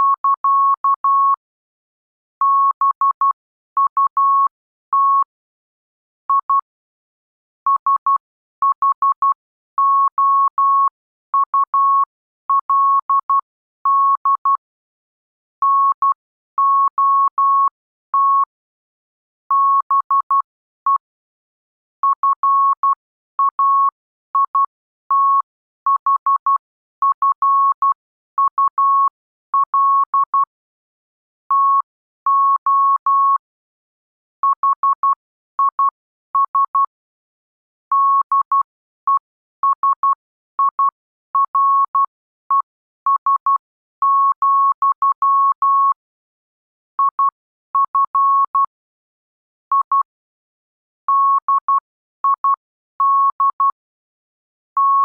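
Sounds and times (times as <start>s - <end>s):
morse code tone beeps: 0.0s - 1.4s, 2.4s - 5.3s, 6.3s - 6.7s, 7.7s - 14.6s, 15.6s - 18.5s, 19.5s - 21.1s, 22.0s - 30.6s, 31.5s - 33.5s, 34.4s - 37.0s, 37.9s - 46.1s, 47.0s - 48.8s, 49.7s - 50.2s, 51.0s - 53.8s, 54.8s - 55.0s.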